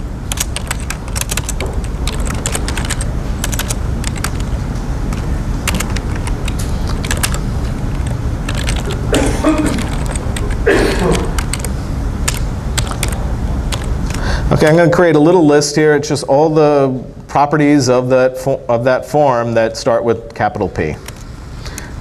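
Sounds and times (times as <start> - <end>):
steady low hum: 0.0 - 22.0
keyboard key clicks: 0.3 - 4.5, 5.1 - 7.4, 8.0 - 9.0, 12.3 - 13.9.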